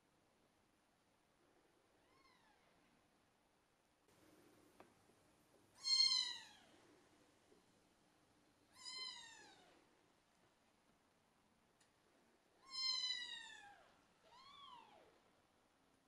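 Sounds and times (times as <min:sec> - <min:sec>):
kitten meowing: 0:05.8 - 0:06.7, 0:08.7 - 0:09.6, 0:12.6 - 0:15.0.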